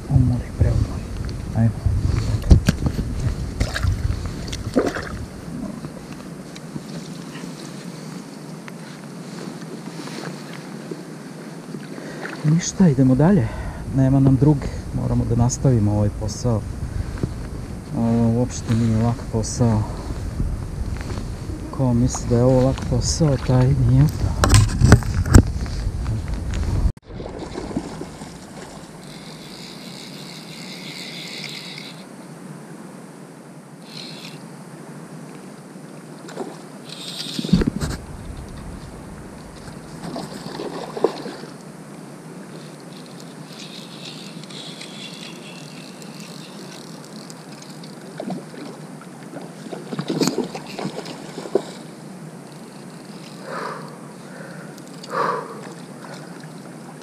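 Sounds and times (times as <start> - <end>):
wind on microphone: 0.0 - 6.0, 13.7 - 30.4, 37.0 - 41.4
flowing river water: 3.5 - 12.9, 27.0 - 32.8, 33.5 - 57.0
high steady hiss: 27.5 - 57.0.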